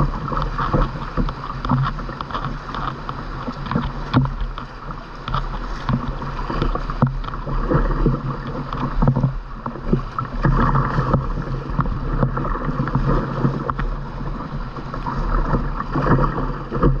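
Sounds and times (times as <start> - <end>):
paddle stroke splashes: 0.0 - 17.0
river water rushing: 0.0 - 17.0
waves slapping hull: 0.0 - 17.0.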